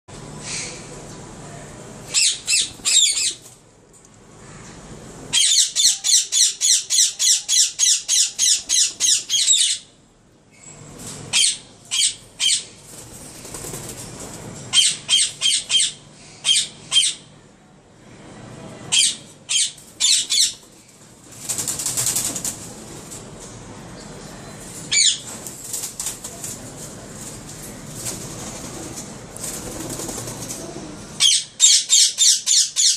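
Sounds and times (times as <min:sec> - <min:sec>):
parrots screeching: 0:02.1 - 0:03.4
wings flapping: 0:02.4 - 0:03.6, 0:12.8 - 0:14.6, 0:19.8 - 0:23.4, 0:24.7 - 0:30.9.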